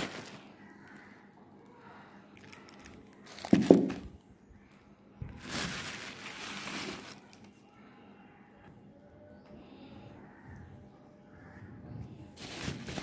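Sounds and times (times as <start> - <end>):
plastic bags crinkling: 0.0 - 1.0, 2.4 - 4.2, 5.2 - 7.6, 12.4 - 13.0.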